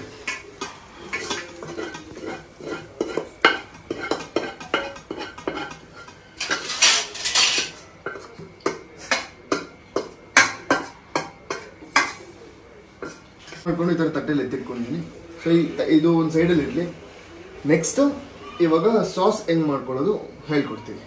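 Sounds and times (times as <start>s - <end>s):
spoon scraping steel pan: 0.2s - 9.2s
metal spoon clinking on steel: 0.3s - 12.1s.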